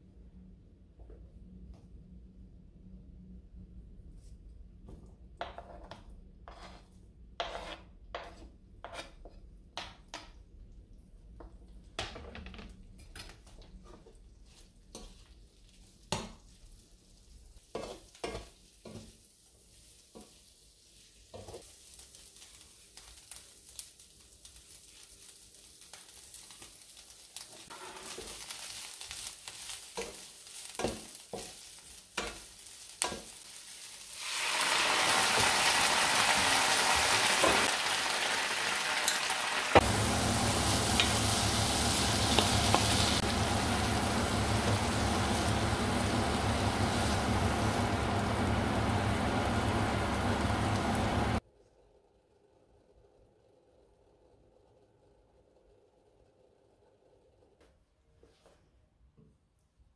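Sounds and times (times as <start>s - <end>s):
wooden spatula scraping a pan: 5.4s - 9.9s, 13.5s - 23.2s, 27.6s - 33.5s
cabbage sizzling in a pan: 13.9s - 51.4s
low hum: 39.8s - 51.4s.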